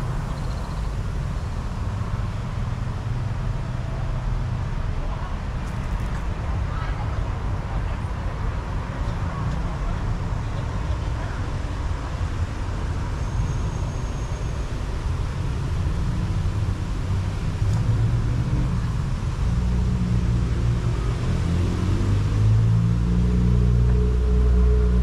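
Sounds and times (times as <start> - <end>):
low engine rumble: 15.1 - 25.0.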